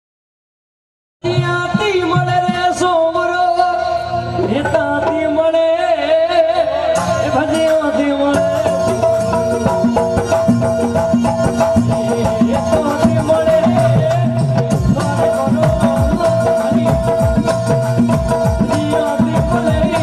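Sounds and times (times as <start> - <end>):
drum beats: 1.2 - 20.0
man singing: 1.2 - 20.0
harmonium drone: 6.9 - 20.0.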